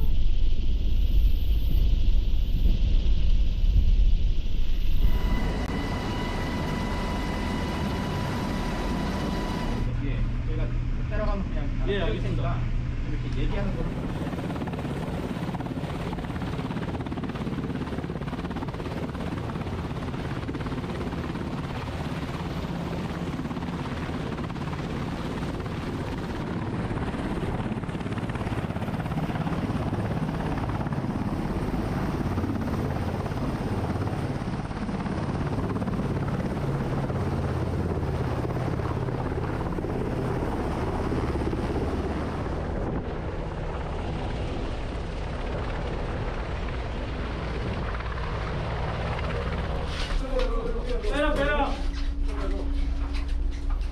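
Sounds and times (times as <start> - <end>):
helicopter rotor and turbine noise: 0.0 - 53.9.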